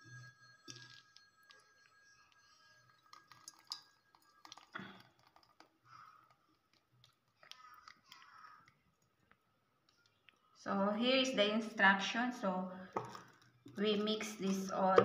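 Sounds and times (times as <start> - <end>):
thick juice pouring and sloshing: 3.0 - 8.4, 13.0 - 13.8.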